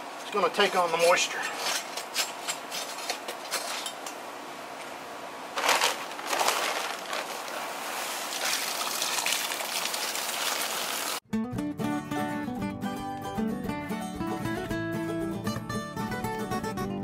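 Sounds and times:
dry concrete mix pouring: 5.6 - 11.2.

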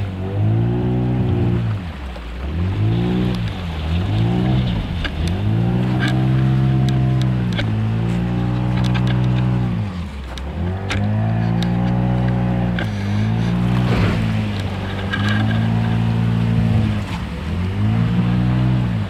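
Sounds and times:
engine running: 0.0 - 19.0
rough crunch: 12.8 - 15.9.

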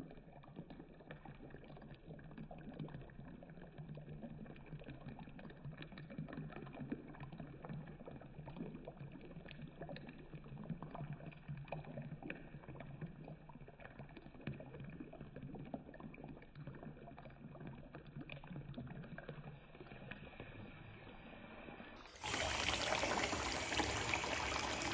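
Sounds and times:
water pouring into bathtub: 0.0 - 24.9.

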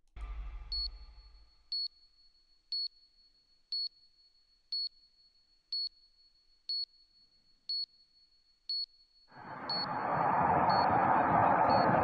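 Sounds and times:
short electronic beeps: 0.7 - 1.9.

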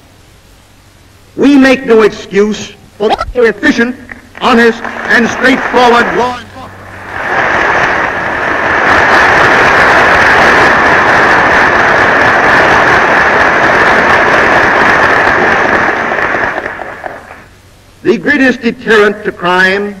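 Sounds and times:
audience applauding: 4.3 - 17.5.

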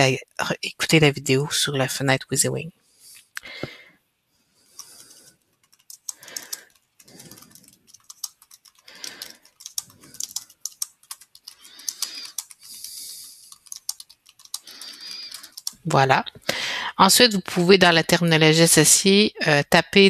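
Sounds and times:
keyboard typing: 4.8 - 15.9.

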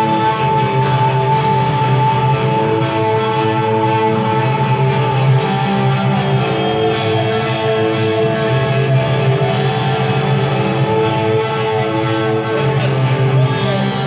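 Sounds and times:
electric guitar: 0.0 - 14.0
rock band playing: 0.0 - 14.0.

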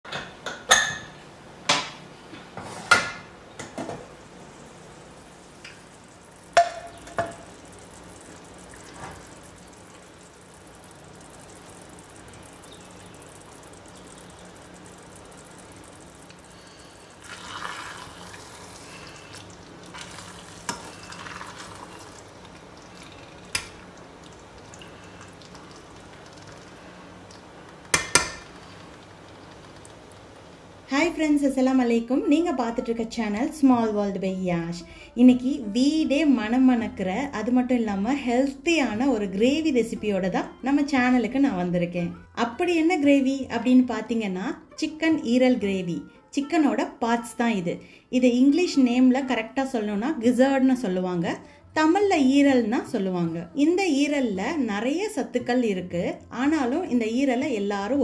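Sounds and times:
pressure cooker hissing: 4.1 - 25.4.

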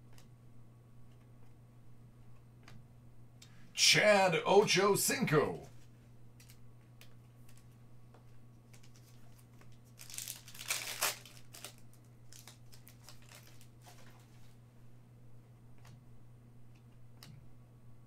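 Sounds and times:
steady low hum: 0.0 - 18.0
plastic wrapper crinkling: 8.7 - 14.4.

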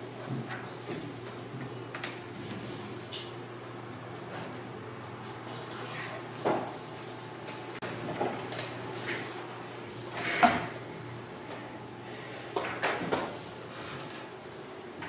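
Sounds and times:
knocks and clatters of desks: 6.4 - 6.8, 7.8 - 9.2, 12.5 - 14.3.

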